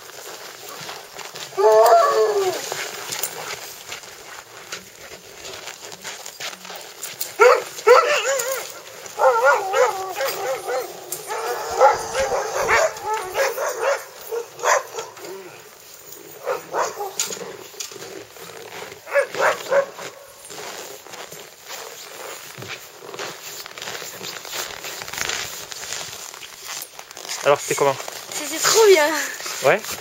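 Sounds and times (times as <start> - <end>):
dogs whining and yowling: 1.4 - 3.4, 7.3 - 15.6, 16.3 - 17.6.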